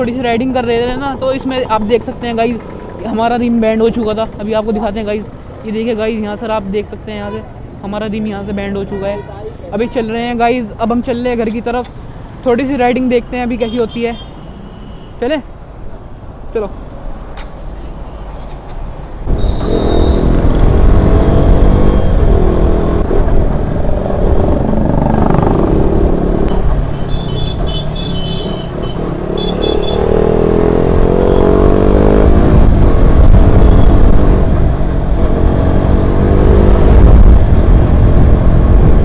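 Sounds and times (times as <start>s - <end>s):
wind and road noise: 0.0s - 39.0s
motorcycle engine accelerating: 19.3s - 26.5s, 28.6s - 39.0s.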